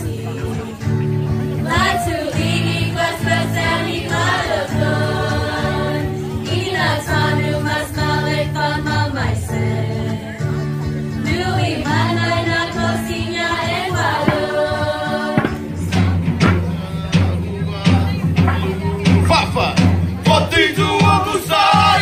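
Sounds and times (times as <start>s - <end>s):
voices singing together: 0.0s - 22.0s
steady bass line: 10.5s - 22.0s.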